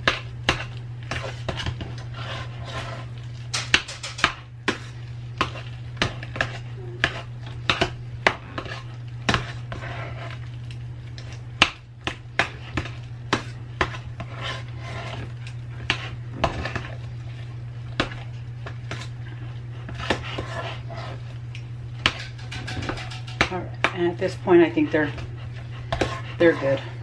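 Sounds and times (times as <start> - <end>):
soft squishing of mash: 4.6 - 22.2
low hum: 19.4 - 27.0
metal utensil scraping a saucepan: 22.1 - 23.5, 26.0 - 27.0.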